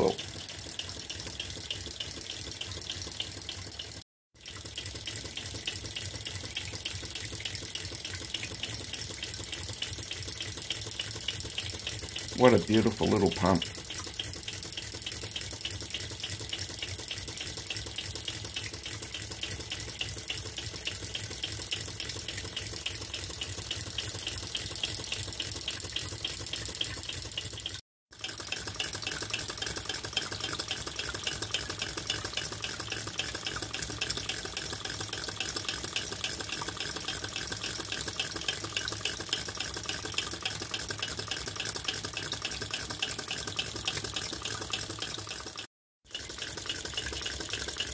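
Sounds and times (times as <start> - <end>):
rapid engine clicking: 0.0 - 47.9.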